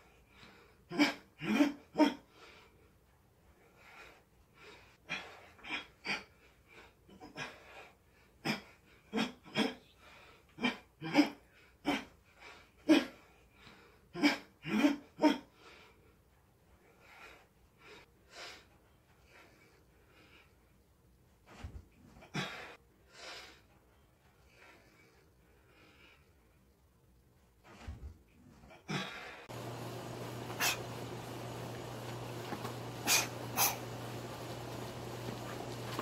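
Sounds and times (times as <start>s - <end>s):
sharp exhalations through mouth: 33.0s - 33.8s.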